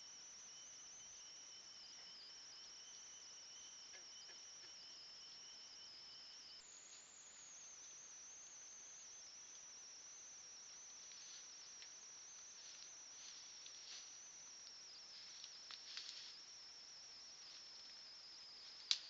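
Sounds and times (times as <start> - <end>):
crickets chirping: 0.0 - 19.0
animal rustling through grass: 12.6 - 14.2, 15.1 - 16.4.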